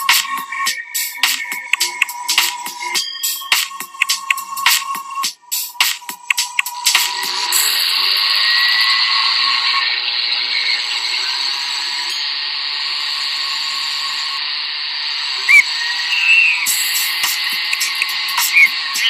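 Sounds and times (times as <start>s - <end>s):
electric blender running: 7.5s - 19.0s.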